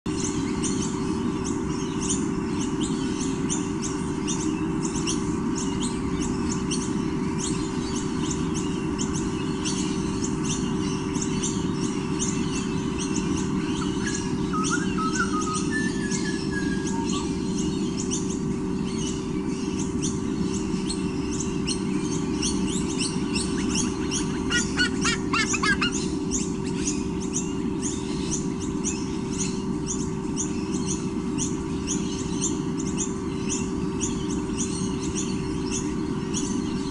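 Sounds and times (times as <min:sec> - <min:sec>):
steady low hum: 0:00.1 - 0:36.9
eagle chicks squonking: 0:04.7 - 0:36.8
high-pitched chirping: 0:07.6 - 0:18.5, 0:19.8 - 0:28.8.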